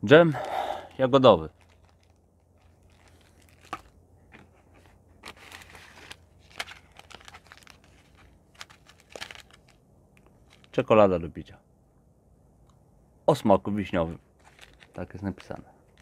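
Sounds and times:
food packets crinkling: 1.2s - 10.8s, 14.4s - 16.0s.

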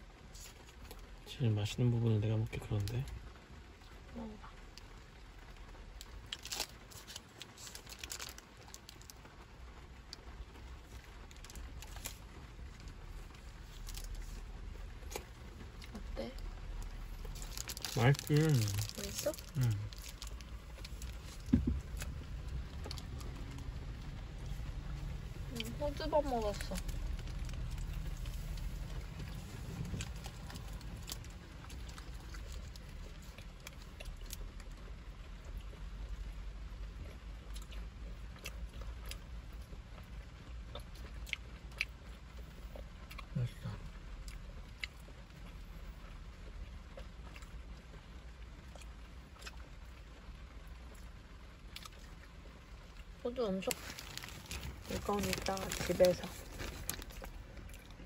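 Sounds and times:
low steady rumble: 0.0s - 58.0s
rain drops tapping on car: 0.0s - 58.0s
paper wrapper crinkling: 6.3s - 9.2s, 17.2s - 23.6s, 53.6s - 57.9s.

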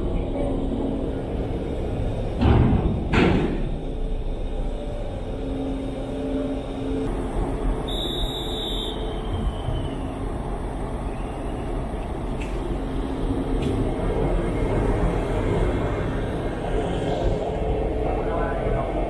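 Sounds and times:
forklift driving on steel ramp: 0.0s - 7.9s
ship machinery rumble: 0.0s - 19.0s
loud metal clanks: 2.3s - 3.9s.

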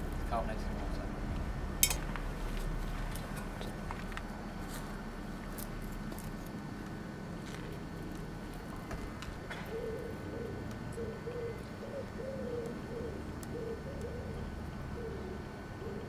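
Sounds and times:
pigeon cooing: 9.4s - 16.0s.

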